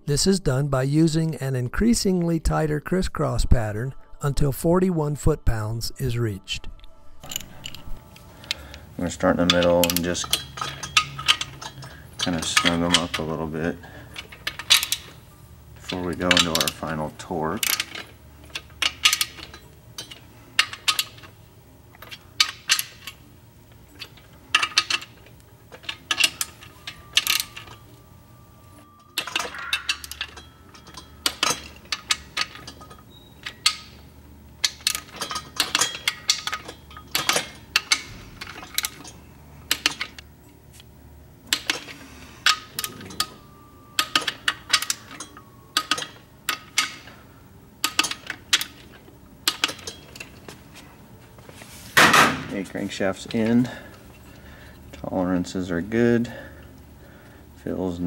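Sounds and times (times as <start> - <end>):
metal tool clinking: 7.2 - 15.2, 28.9 - 34.0.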